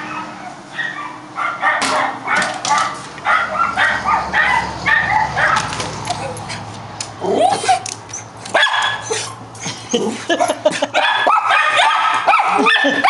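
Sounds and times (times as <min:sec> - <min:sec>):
dogs barking: 0:00.0 - 0:13.0
dogs yipping: 0:00.0 - 0:13.0.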